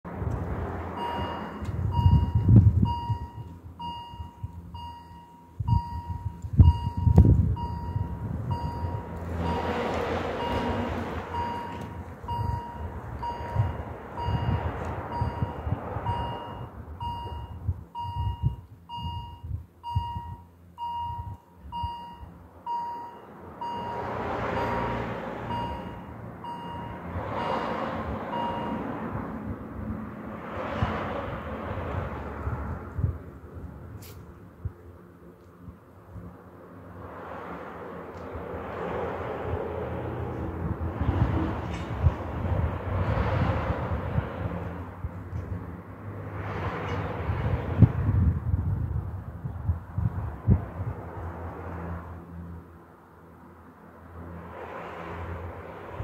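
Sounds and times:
road vehicles passing: 0.0s - 56.0s
level crossing bells ringing: 1.0s - 9.8s, 10.4s - 14.6s, 24.6s - 27.0s.

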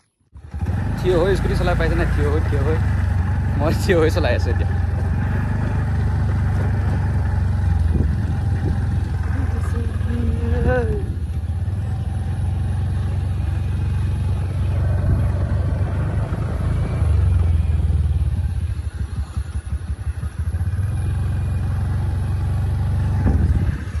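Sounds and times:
motor scooter engine running: 0.3s - 24.0s
wind rumble on microphone: 5.0s - 11.8s, 14.2s - 20.9s, 22.7s - 24.0s.

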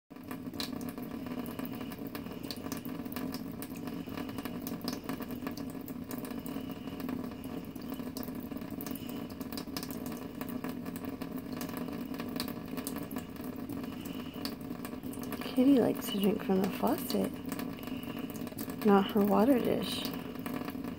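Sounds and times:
tap water running into sink: 0.1s - 20.9s
cat lapping water: 0.2s - 20.9s.

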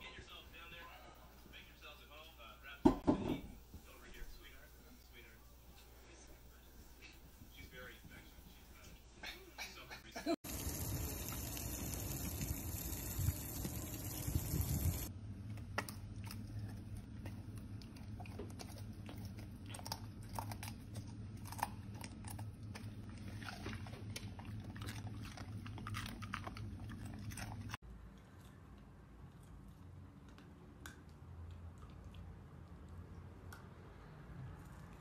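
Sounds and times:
dog crunching vegetable: 15.5s - 30.9s.

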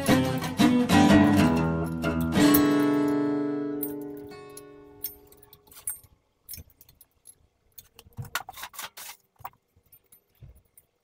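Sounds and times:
metal tools clinking and rattling: 3.8s - 8.7s.

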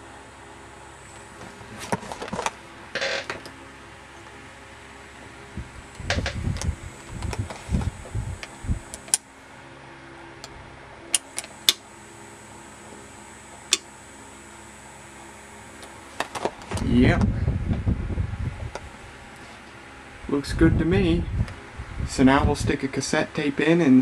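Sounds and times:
cassette deck motor hum: 0.0s - 24.0s
low bumps and rustling: 5.6s - 8.9s.

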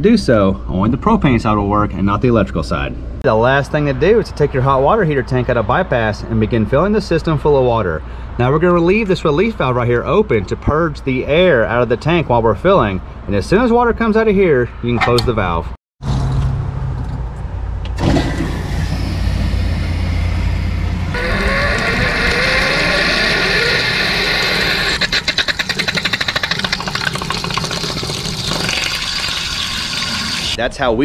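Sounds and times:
valve hissing and sputtering water: 21.2s - 30.6s
water gushing: 21.2s - 30.6s.

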